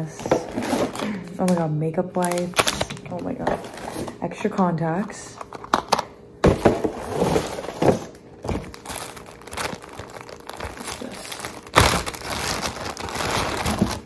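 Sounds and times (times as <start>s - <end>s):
plastic bag crinkling: 2.2s - 4.1s, 6.6s - 14.0s.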